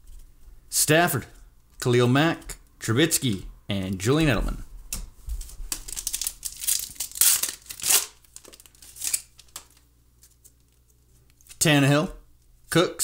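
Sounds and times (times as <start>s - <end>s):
soft rustles of wrapper: 5.3s - 11.6s
foil wrapper tearing and crinkling: 5.7s - 10.8s.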